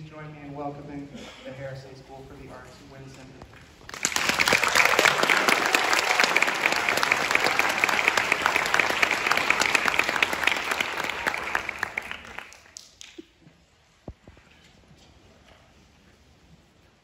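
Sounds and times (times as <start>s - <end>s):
audience applauding: 3.9s - 13.2s.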